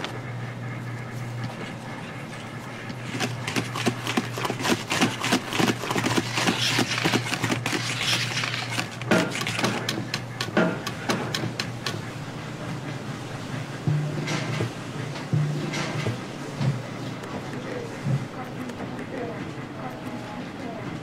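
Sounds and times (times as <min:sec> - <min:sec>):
steady low hum: 0:00.0 - 0:21.0
whisk scraping a steel bowl: 0:03.2 - 0:11.6.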